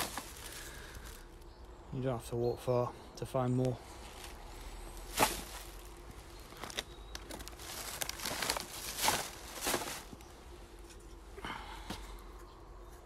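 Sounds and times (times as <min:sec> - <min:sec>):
footsteps on dry leaves: 0:00.0 - 0:01.5, 0:03.8 - 0:10.8
plastic bag and wrappers crinkling: 0:00.0 - 0:01.5, 0:04.0 - 0:10.3.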